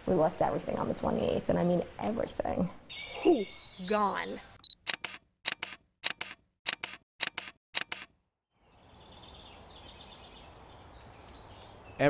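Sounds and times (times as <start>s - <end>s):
outdoor background noise: 0.0s - 12.0s
camera shutter clicks: 4.8s - 8.1s.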